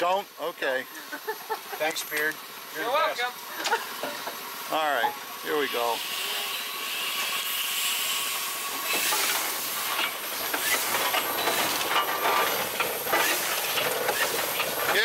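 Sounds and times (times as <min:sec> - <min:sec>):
steam engine hissing: 0:00.0 - 0:15.0
irregular knocks and clanks: 0:09.9 - 0:15.0.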